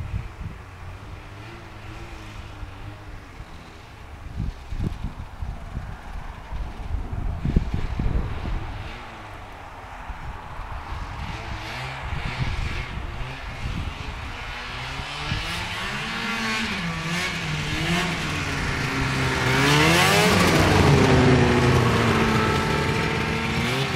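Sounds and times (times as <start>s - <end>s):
snowmobile engine revving: 0.8s - 5.2s, 10.6s - 23.9s.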